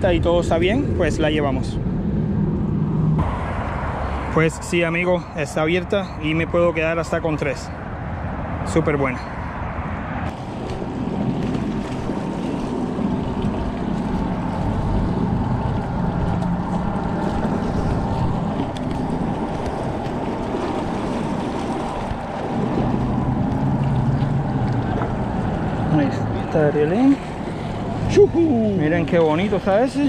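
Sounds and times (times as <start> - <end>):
low engine drone: 0.0 - 30.0
wind noise on microphone: 9.3 - 26.0.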